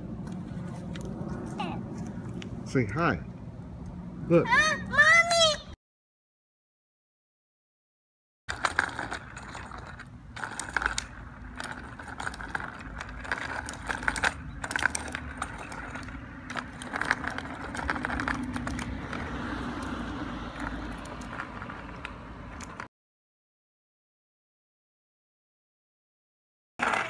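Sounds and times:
small bicycle rattling on concrete: 8.5s - 22.9s, 26.8s - 27.0s.

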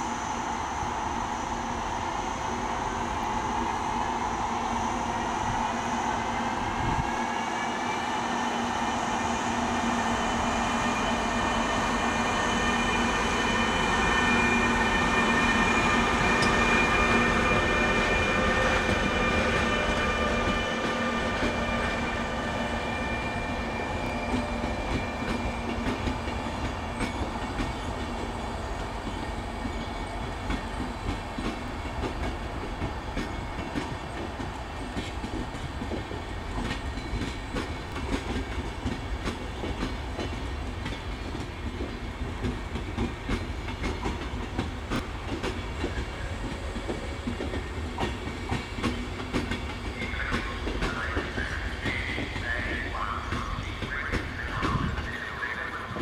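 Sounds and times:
electric locomotive whine: 0.0s - 56.0s
train wheels clicking over rail joints: 10.7s - 22.2s, 23.8s - 56.0s.

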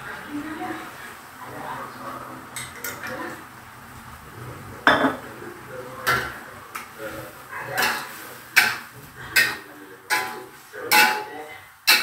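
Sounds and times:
sharp spatula clanks: 7.8s - 12.0s.

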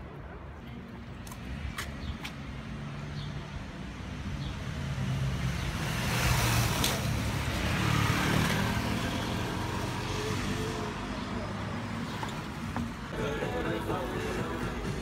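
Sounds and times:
street traffic: 0.0s - 15.0s
motorcycles passing close by: 5.2s - 11.2s.

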